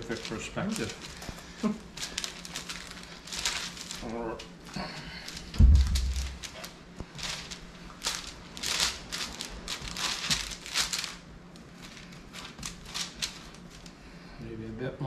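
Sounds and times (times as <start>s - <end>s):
parchment paper crinkling: 0.0s - 14.0s
hands patting pastry: 0.0s - 14.2s
low thump: 5.6s - 6.5s.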